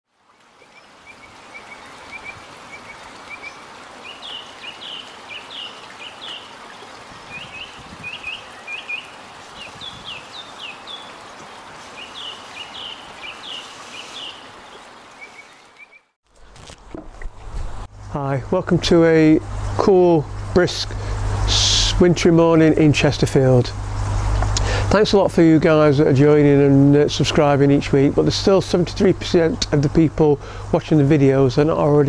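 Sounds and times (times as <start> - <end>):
steady background hiss: 0.2 - 32.0
small birds chirping: 0.6 - 16.1.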